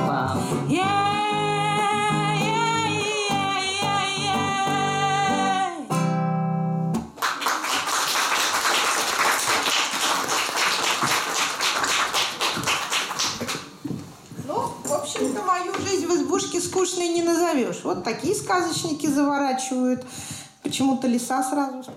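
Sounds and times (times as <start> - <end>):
woman singing: 0.0 - 6.0
audience applauding: 7.1 - 13.7.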